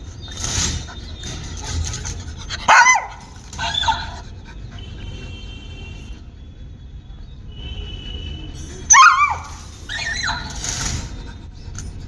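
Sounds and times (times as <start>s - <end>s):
dog high-pitched cry: 2.5s - 4.3s, 8.9s - 10.9s
dog yelping bark: 2.5s - 4.3s, 8.9s - 10.8s.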